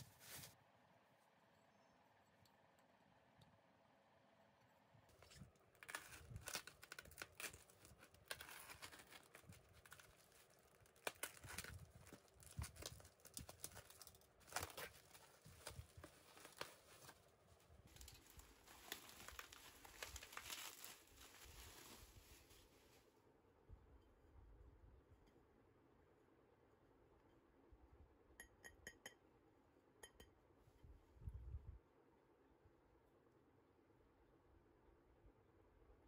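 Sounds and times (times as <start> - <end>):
plastic packaging crinkling: 5.1 - 22.7.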